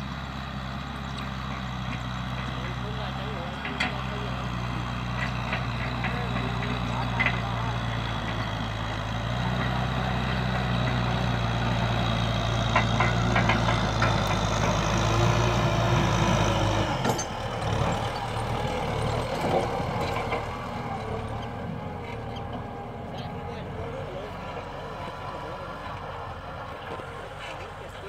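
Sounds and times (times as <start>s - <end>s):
tractor engine under load: 0.0s - 28.0s
plough clanks: 1.0s - 23.4s.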